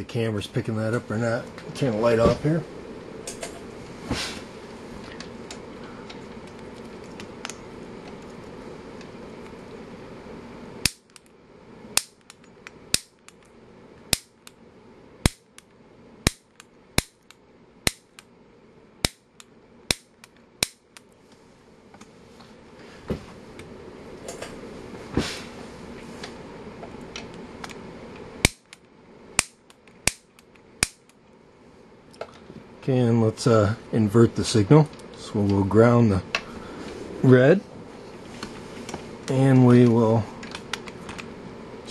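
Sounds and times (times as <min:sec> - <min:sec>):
grill ignitor snapping: 0:10.8 - 0:14.6, 0:15.2 - 0:18.3, 0:19.0 - 0:21.1, 0:28.4 - 0:31.2, 0:39.2 - 0:41.3.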